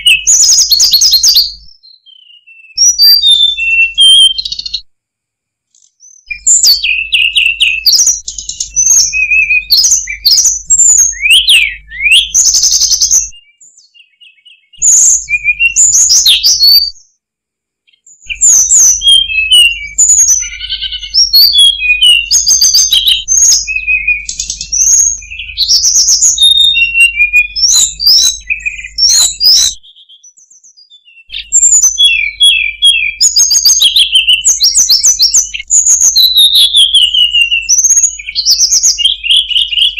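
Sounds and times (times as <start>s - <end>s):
bird singing chirps and trills: 0.0s - 4.9s, 5.7s - 17.2s, 17.9s - 39.9s.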